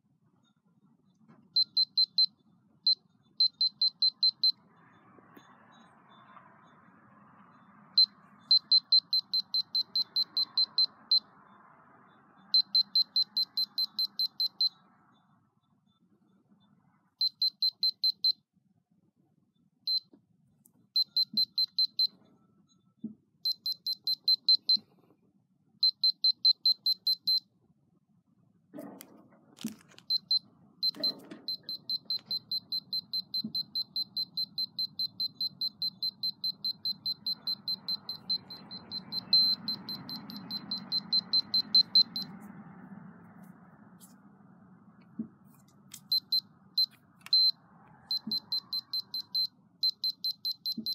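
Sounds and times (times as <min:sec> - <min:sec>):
rapid high electronic beeping: 0:08.0 - 0:11.3, 0:12.5 - 0:14.7, 0:30.1 - 0:42.3, 0:48.1 - 0:50.9.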